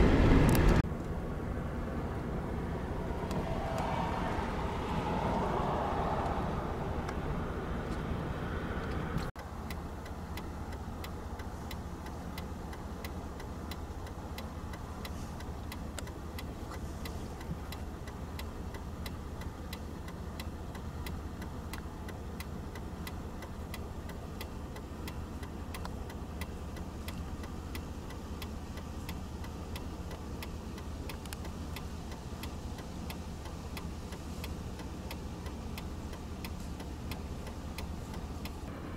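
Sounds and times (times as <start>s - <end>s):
car engine hum: 0.0s - 38.9s
road noise: 0.0s - 38.9s
regular ticking: 9.2s - 38.7s.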